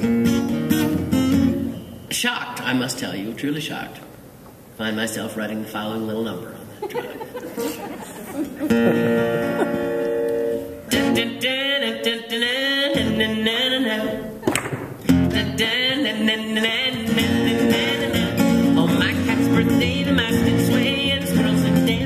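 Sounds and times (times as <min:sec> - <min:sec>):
acoustic guitar: 0:00.0 - 0:02.8, 0:07.6 - 0:22.0.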